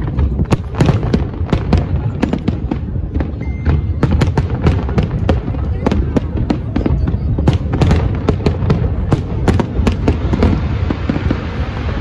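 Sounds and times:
fireworks banging and cracking: 0.0 - 12.0.

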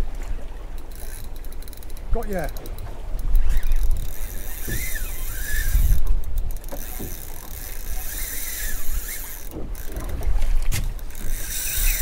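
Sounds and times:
fishing reel whining and clicking: 0.7 - 12.0.

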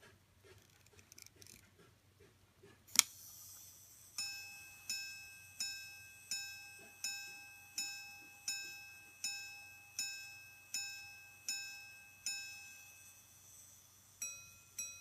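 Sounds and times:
pocket watch gong rings: 4.0 - 15.0.

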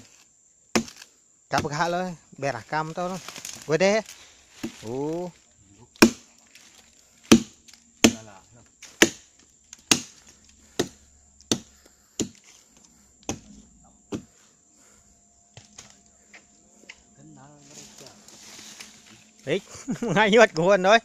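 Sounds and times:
axe chopping into wood: 0.7 - 1.8, 6.0 - 6.3, 7.2 - 12.5, 13.2 - 14.3.

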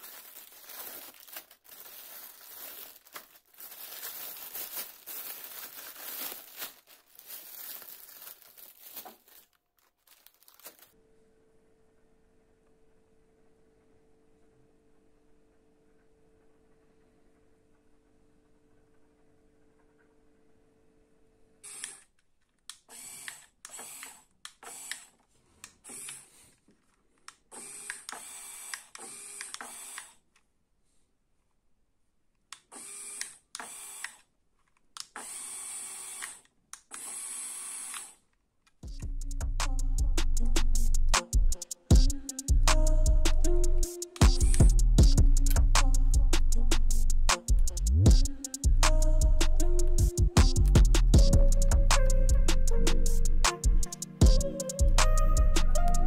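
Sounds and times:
plastic bags crinkling: 0.0 - 10.9
small electric motors whirring: 35.2 - 38.2.

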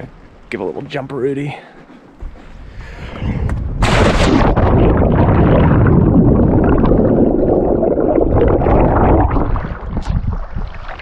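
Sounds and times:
water churning and gurgling: 3.6 - 11.0.

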